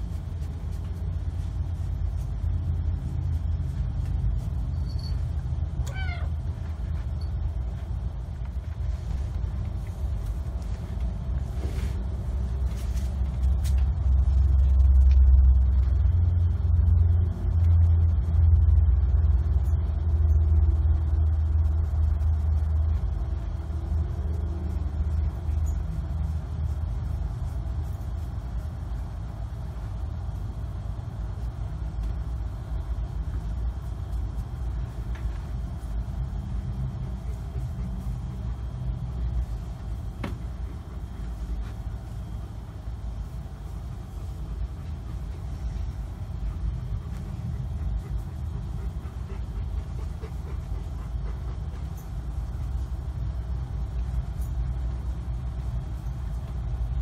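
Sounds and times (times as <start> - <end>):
low rumble: 0.0 - 57.0
kitten meowing: 5.8 - 6.4.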